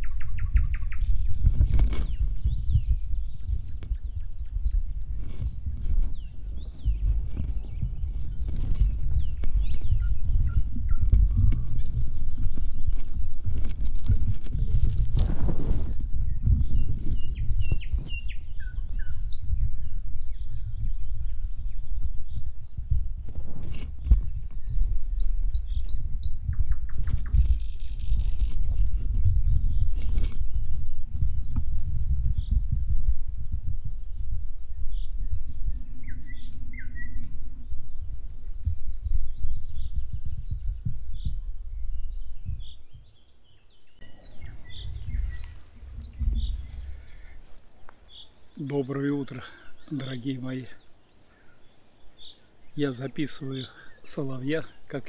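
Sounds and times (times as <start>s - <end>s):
nightingale singing: 0.0s - 15.3s, 16.2s - 23.0s, 23.6s - 31.7s, 32.3s - 55.0s
low rumble on microphone: 0.0s - 53.2s
steady low rumble: 43.9s - 49.0s.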